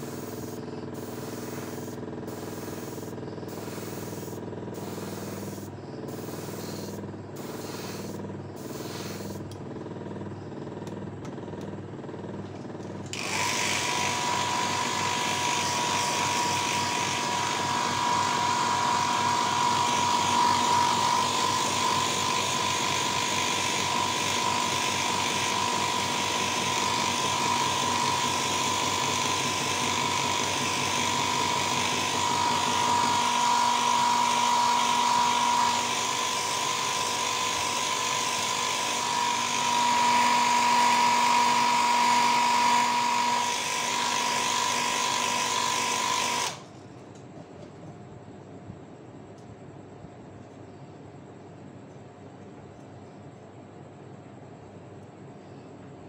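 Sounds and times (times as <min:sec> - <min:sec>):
airbrush spraying spurts: 0:00.0 - 0:09.5
rush of air with high whine: 0:00.0 - 0:09.5
compressor motor humming: 0:00.0 - 0:46.7.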